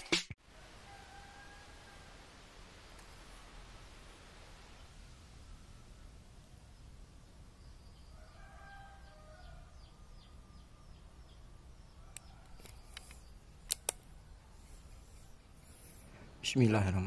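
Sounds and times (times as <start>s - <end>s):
light handling clicks: 12.1s - 14.1s
sharp clicks: 12.1s - 14.2s.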